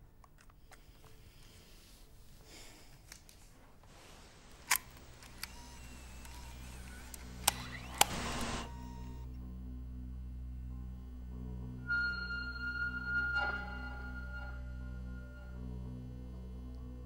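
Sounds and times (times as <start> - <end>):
low steady hum: 3.6 - 17.0
camcorder mechanical clicks: 4.6 - 9.3.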